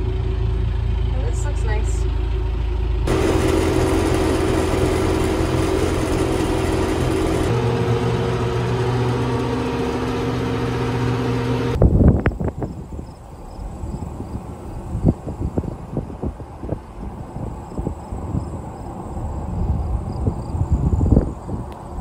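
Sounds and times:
tractor engine drone from cab: 0:00.0 - 0:11.8.

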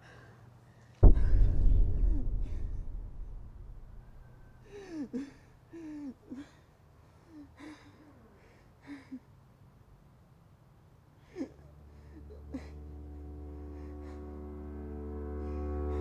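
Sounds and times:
low steady hum: 0:01.0 - 0:05.4.

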